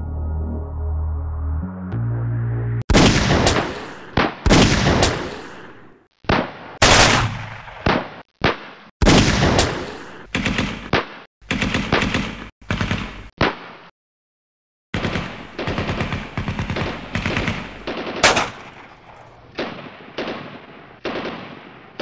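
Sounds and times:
low electronic hum: 0:00.0 - 0:02.8
gunshots and rapid bursts: 0:02.9 - 0:13.9, 0:14.9 - 0:22.0.

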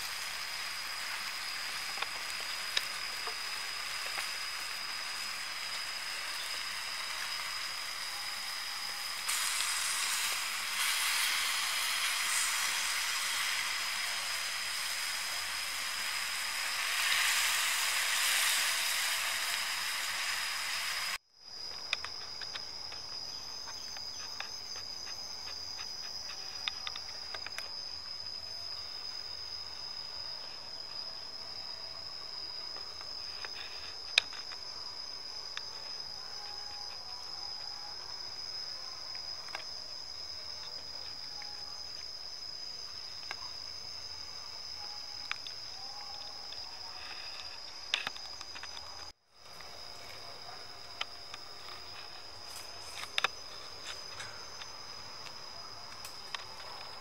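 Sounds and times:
skewers sizzling on hot stone: 0:00.0 - 0:21.2
insects chirping: 0:00.0 - 0:57.0.

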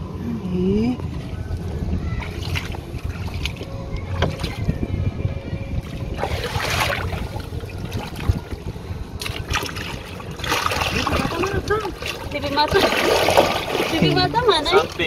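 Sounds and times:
wind rumble on microphone: 0:00.0 - 0:15.0
water lapping against a boat: 0:01.0 - 0:05.0, 0:05.8 - 0:15.0
loud splash: 0:06.2 - 0:07.4, 0:09.2 - 0:14.1.

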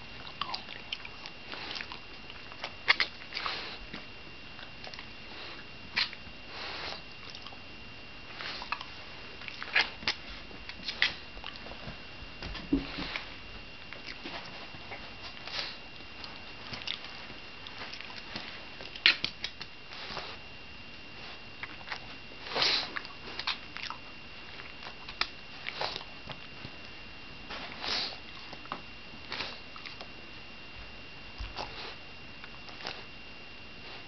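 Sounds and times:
dog sniffing: 0:03.3 - 0:03.9, 0:05.3 - 0:07.0, 0:22.5 - 0:23.5, 0:27.5 - 0:28.2.

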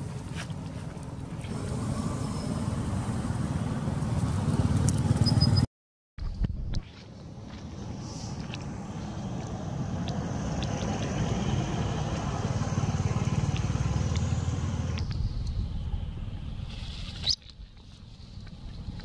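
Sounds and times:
motorcycle passing by: 0:01.4 - 0:05.7, 0:08.8 - 0:15.0.

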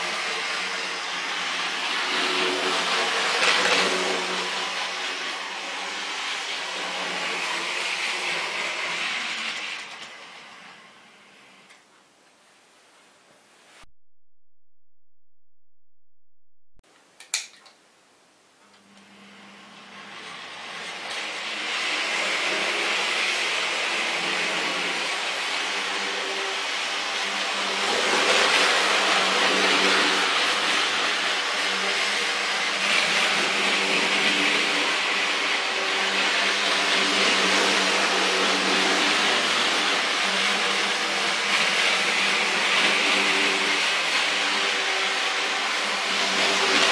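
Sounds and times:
model train wheel noise: 0:07.2 - 0:10.2.

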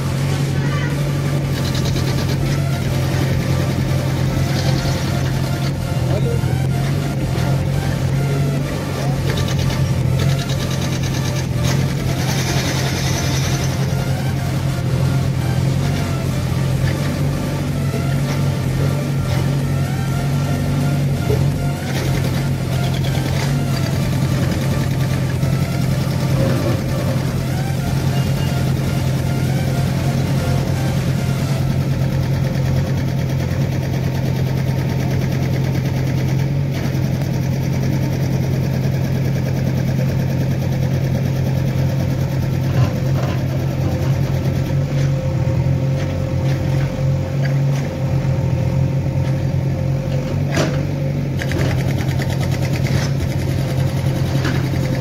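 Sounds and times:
diesel engine running under load: 0:00.0 - 0:55.0
backhoe bucket digging: 0:21.0 - 0:31.3.

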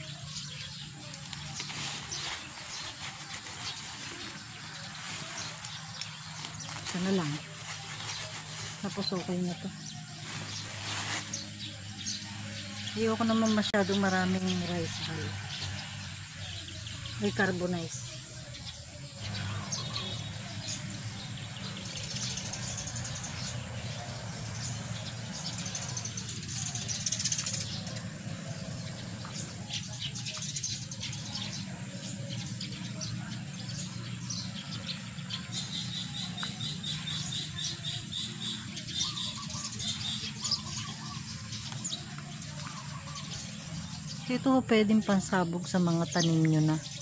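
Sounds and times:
birds chirping: 0:00.0 - 0:47.0
gloved hands mixing dry soil: 0:00.2 - 0:11.6.

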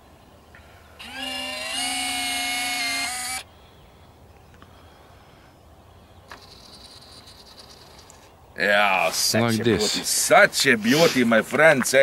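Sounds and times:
landing gear motor whine: 0:01.0 - 0:03.5.

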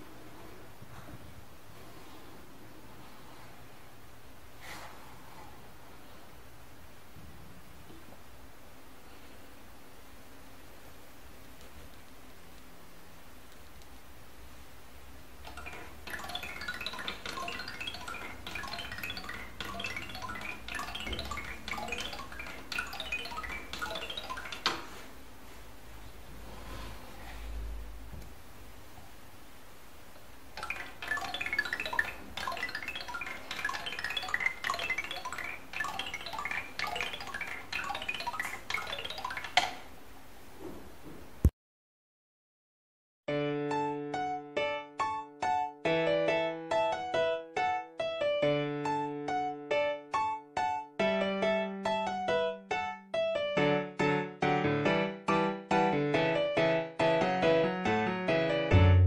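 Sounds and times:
wooden balls tapping rods: 0:15.5 - 0:24.9, 0:30.6 - 0:39.9.

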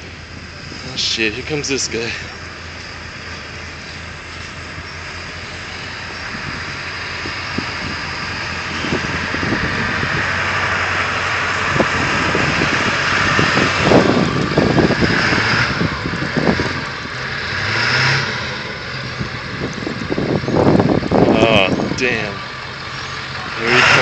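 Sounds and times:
truck engine revving: 0:00.0 - 0:24.0
tyres spinning in snow: 0:00.0 - 0:24.0.

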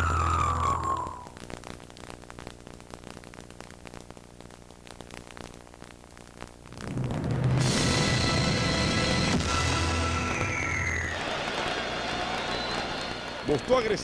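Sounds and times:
crackles: 0:00.0 - 0:14.0
static hiss: 0:00.0 - 0:14.0
music with falling sweep: 0:07.6 - 0:11.1.

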